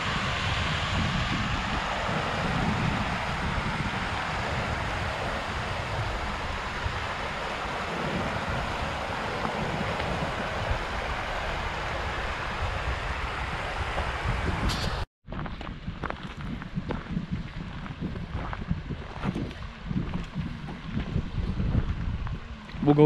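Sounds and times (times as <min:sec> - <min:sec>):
stream rushing over stones: 0:00.0 - 0:14.6
wind buffeting microphone: 0:00.0 - 0:23.0.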